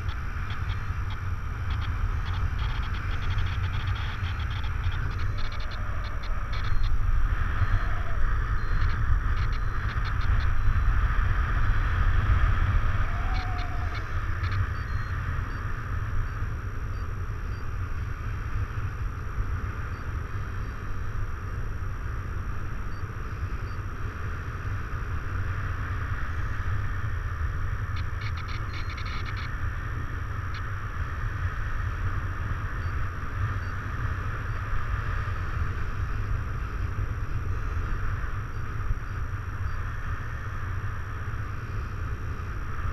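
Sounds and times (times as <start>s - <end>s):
faint clicks: 0.0s - 7.0s, 7.6s - 10.6s, 13.2s - 15.1s, 27.9s - 29.6s
wind rushing over microphone: 0.0s - 42.9s.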